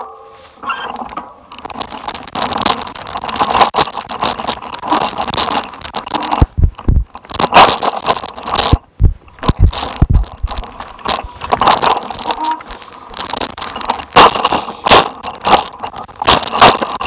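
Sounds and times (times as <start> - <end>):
crunching on stony dirt track: 0.0 - 17.0
sharp low thumps: 6.4 - 7.1, 8.8 - 10.6.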